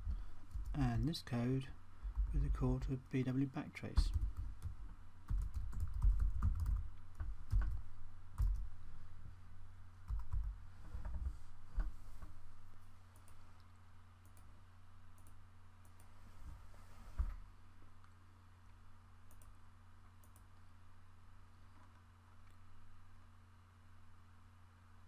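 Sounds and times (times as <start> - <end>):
low steady hum: 0.0 - 25.0
computer keyboard typing: 0.4 - 1.1, 4.0 - 7.8, 8.4 - 8.7, 10.1 - 10.6.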